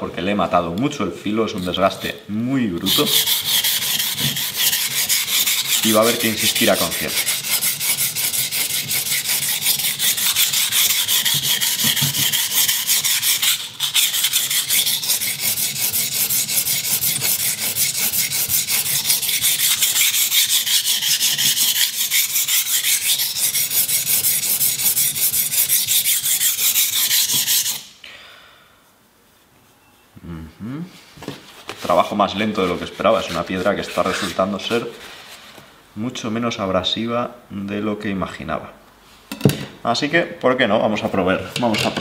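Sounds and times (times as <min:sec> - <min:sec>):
knife scraping on whetstone: 0:02.8 - 0:27.8.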